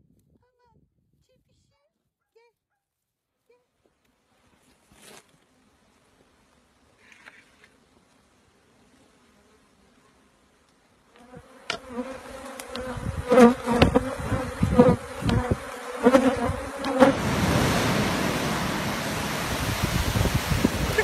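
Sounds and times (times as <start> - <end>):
bees buzzing: 11.2 - 21.0
surf rushing: 17.0 - 21.0.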